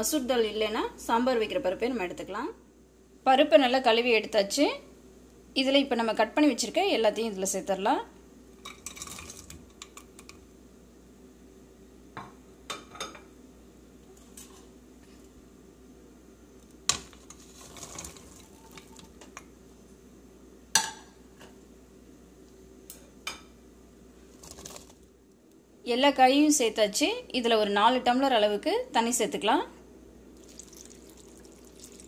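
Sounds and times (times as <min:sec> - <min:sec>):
vegetable pieces dropping in pot: 0:24.4 - 0:25.1.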